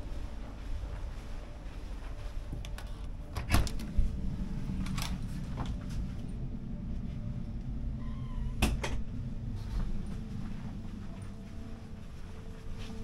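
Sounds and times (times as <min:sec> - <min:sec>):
steady low hum: 0:00.0 - 0:13.0
faint door squeak: 0:08.0 - 0:08.8.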